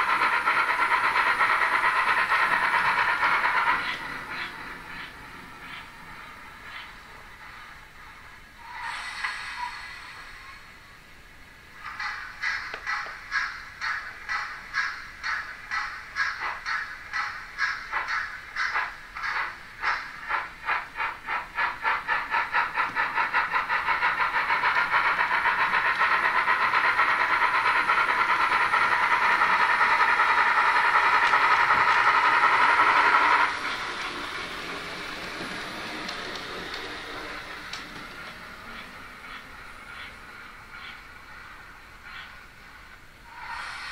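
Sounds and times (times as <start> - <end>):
steady steam hiss: 0.0 - 43.9
burst of steam: 8.6 - 10.8, 43.2 - 43.9.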